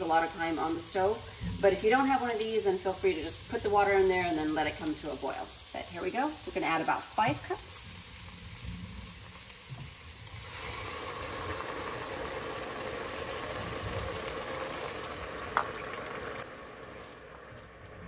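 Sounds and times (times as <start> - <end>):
vegetables sizzling in a pot: 0.0 - 18.0
water pouring from kettle: 9.1 - 18.0.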